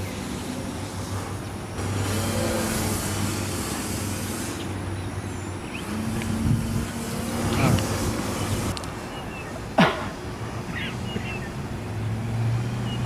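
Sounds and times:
model plane motor buzzing: 1.8 - 5.0, 5.8 - 8.8.

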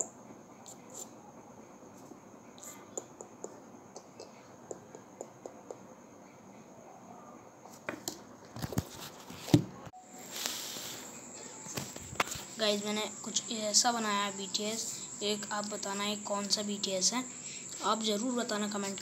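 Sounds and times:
steady hiss: 9.9 - 19.0
thin high steady tone: 10.0 - 19.0.

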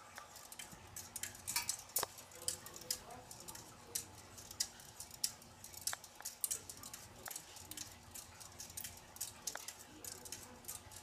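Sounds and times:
ceiling fan motor hum: 0.0 - 11.0
light ticks and clicks: 0.0 - 11.0.

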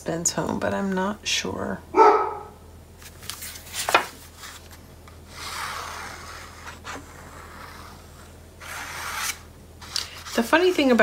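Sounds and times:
paper sliding on a cutting mat: 5.3 - 10.5.

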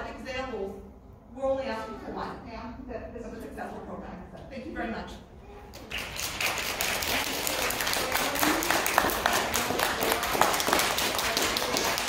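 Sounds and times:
crowd clapping: 5.8 - 12.0.

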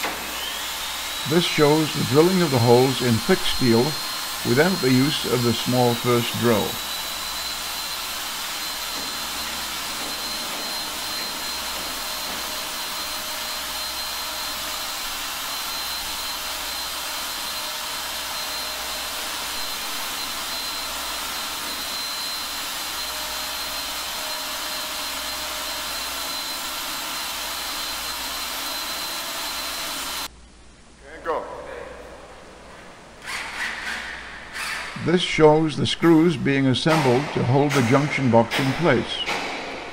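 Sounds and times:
electric drill boring steel: 0.0 - 30.3.

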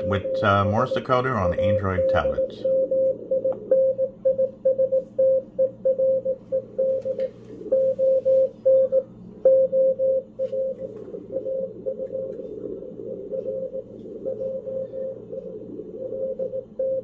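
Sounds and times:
morse code beeps: 0.0 - 17.0
faint radio hiss: 10.4 - 17.0.

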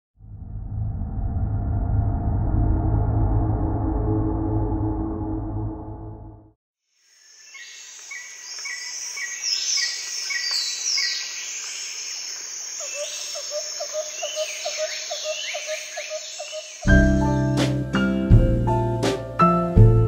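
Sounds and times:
birds singing and chirping: 7.4 - 17.0.

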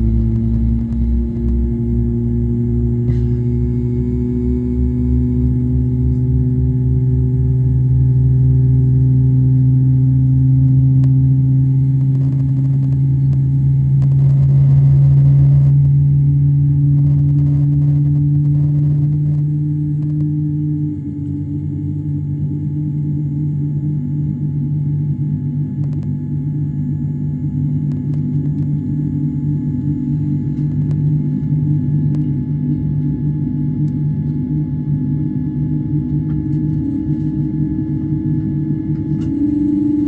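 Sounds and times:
low rapid pulsing: 0.0 - 23.0, 35.8 - 40.0
aircraft cabin hum: 0.0 - 40.0.

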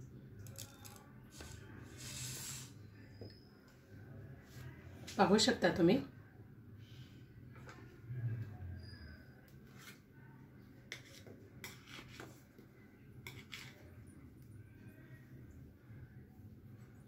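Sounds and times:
soft clicks and scrapes on pan: 10.9 - 12.4, 13.2 - 13.9.

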